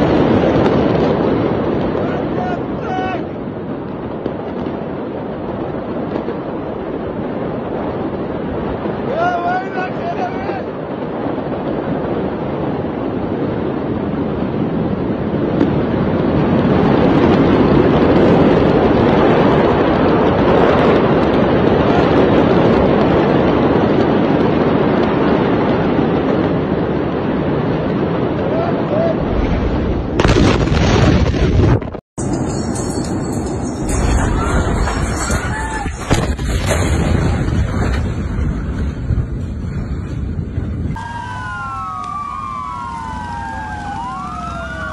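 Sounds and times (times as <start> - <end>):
loud rough rumbling: 0.0 - 44.9
loud steady rushing noise: 32.2 - 44.9
emergency vehicle sirens wailing: 40.9 - 44.9.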